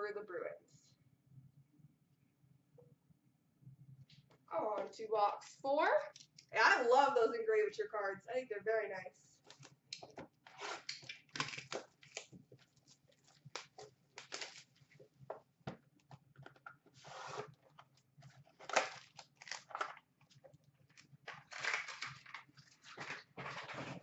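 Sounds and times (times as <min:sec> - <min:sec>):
foil pack crinkling: 0:10.4 - 0:15.0, 0:17.4 - 0:24.0
cardboard scraping and rustling: 0:16.9 - 0:17.6, 0:22.6 - 0:24.0.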